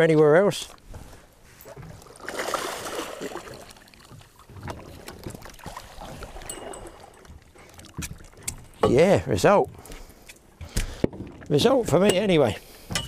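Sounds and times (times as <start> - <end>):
fish thrashing in water: 1.7 - 8.8.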